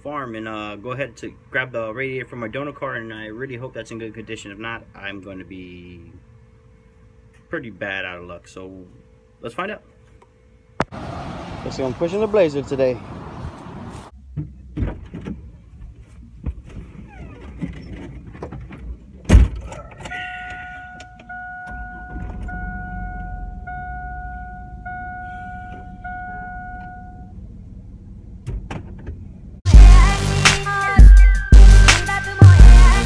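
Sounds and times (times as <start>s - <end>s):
dashboard warning chime: 20.1s - 27.4s
low engine rumble: 21.2s - 30.4s.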